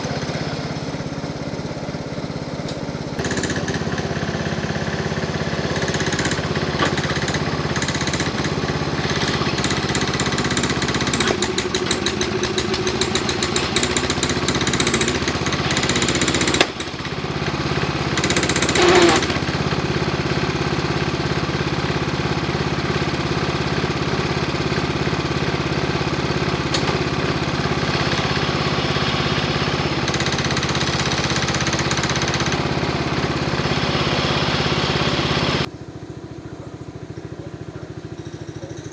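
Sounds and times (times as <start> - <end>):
garden tractor engine running: 0.0 - 38.9
loader bucket digging dirt: 2.6 - 20.4.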